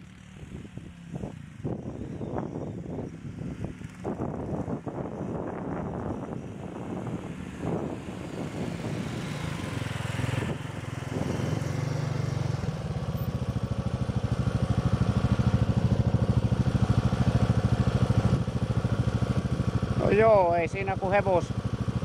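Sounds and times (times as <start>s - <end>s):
atv engine running: 0.0s - 22.0s.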